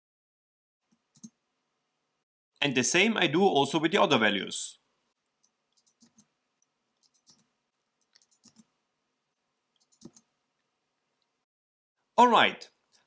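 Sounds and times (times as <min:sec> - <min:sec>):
mouse and keyboard clicks: 0:05.4 - 0:06.3, 0:07.0 - 0:08.7, 0:09.8 - 0:10.3.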